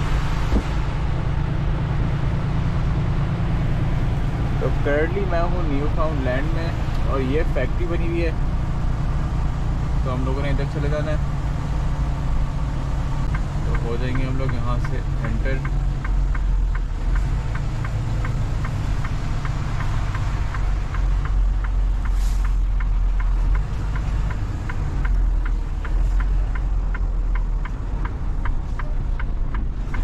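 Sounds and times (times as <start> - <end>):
truck engine running: 0.0 - 30.0
turn signal ticking: 2.0 - 30.0
short air hiss: 22.1 - 22.6.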